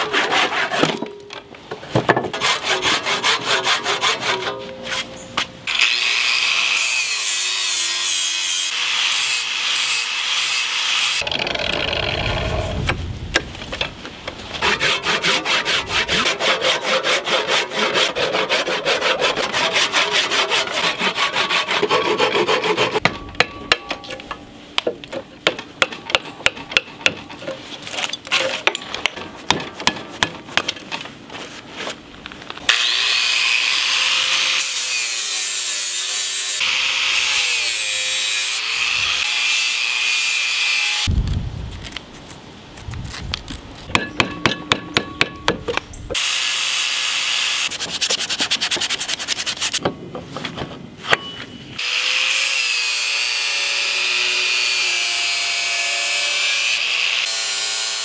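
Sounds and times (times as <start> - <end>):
saw cutting wood: 0.0 - 1.1, 2.3 - 5.1, 5.7 - 12.8, 14.6 - 23.0, 32.7 - 41.1, 46.2 - 49.8, 51.8 - 58.0
chisel knocks: 43.9 - 45.8.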